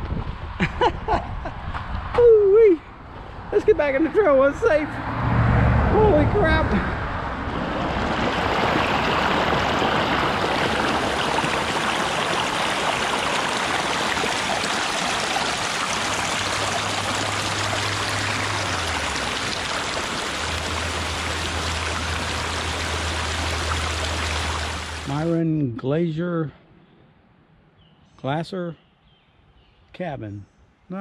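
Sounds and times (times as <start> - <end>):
stream splashing over rocks: 7.4 - 25.4.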